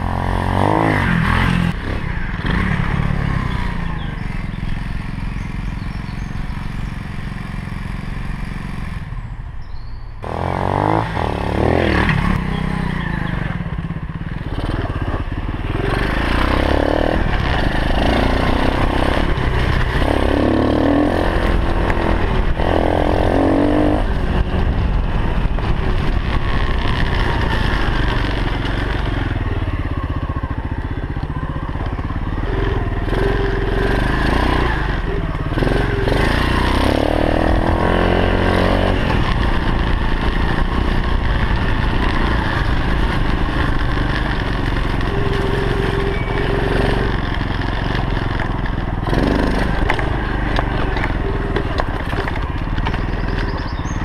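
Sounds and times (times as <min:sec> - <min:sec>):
motorbike engine revving: 0:00.0 - 0:54.0
wind rumble on microphone: 0:21.1 - 0:29.4.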